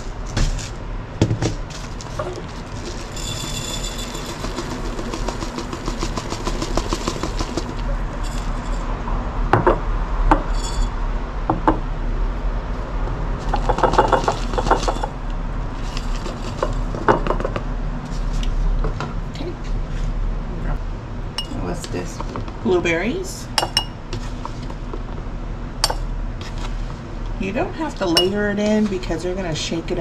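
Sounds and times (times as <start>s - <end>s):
oats pouring into glass jars: 1.7s - 6.0s.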